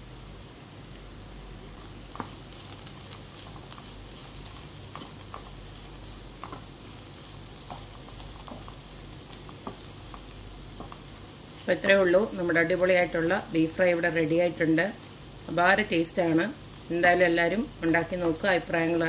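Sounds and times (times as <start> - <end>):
meat sizzling in a frying pan: 0.0 - 19.0
spatula scraping and tapping pan: 3.4 - 7.0, 7.6 - 8.8.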